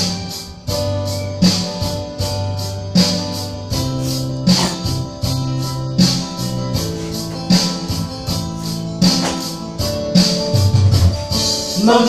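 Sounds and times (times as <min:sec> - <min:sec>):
bass line: 0:03.6 - 0:11.4.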